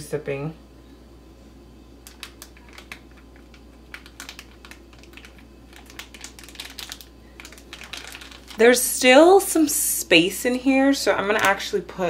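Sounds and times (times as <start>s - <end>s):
plastic bag seal clicks and crinkles: 2.0s - 8.6s.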